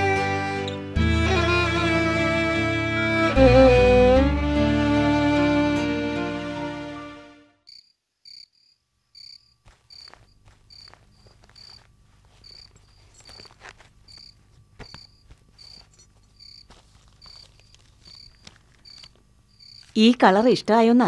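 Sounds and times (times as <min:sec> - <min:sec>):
string music: 0:00.0 - 0:07.6
cricket chirping: 0:07.7 - 0:20.0
cloth and bag rustling: 0:09.6 - 0:20.1.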